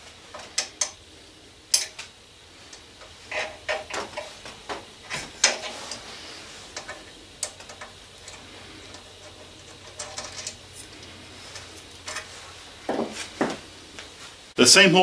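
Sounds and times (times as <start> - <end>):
metallic clicks of hand tools: 1.7 - 2.1.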